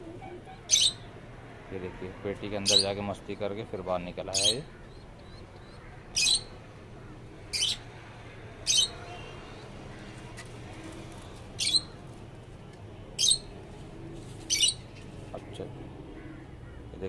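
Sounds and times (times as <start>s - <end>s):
yard background noise: 0.0s - 17.0s
bird harsh squawks: 0.2s - 1.1s, 2.6s - 2.9s, 5.6s - 6.6s, 11.6s - 12.0s, 14.5s - 14.8s.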